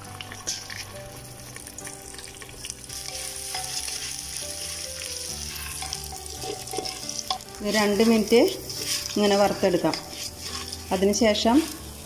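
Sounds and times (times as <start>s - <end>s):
rice sizzling in oil: 0.0s - 12.0s
spoon scraping a pot: 3.0s - 11.9s.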